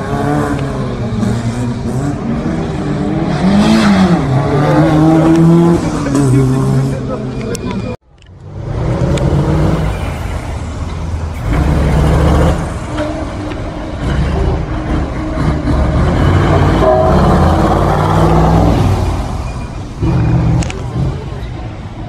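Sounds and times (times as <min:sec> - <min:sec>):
truck diesel engine running hard: 0:10.0 - 0:22.0.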